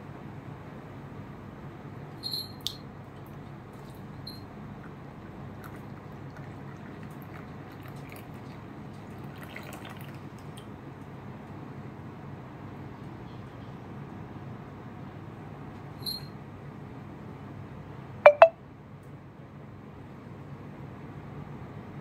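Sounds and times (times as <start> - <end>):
tea dripping and trickling: 5.2 - 10.7
glass pitcher clinking: 18.3 - 18.5.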